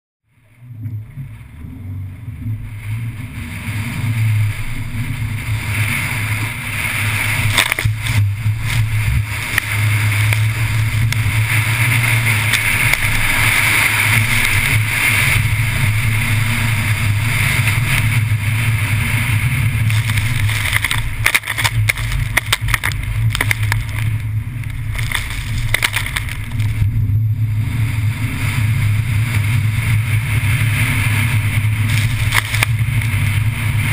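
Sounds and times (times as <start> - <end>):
car engine droning: 0.3 - 33.9
water spray rushing: 2.6 - 26.9.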